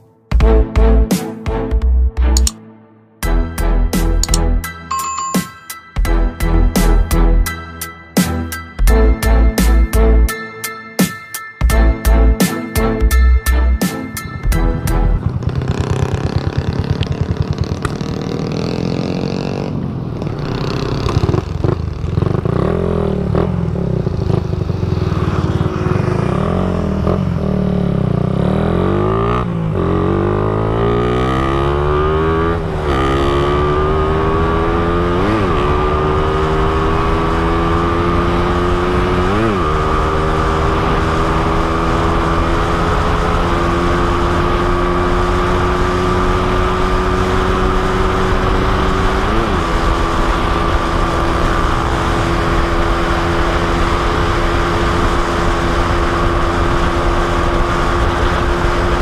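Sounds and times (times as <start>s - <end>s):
motorcycle engine accelerating: 13.5s - 59.0s.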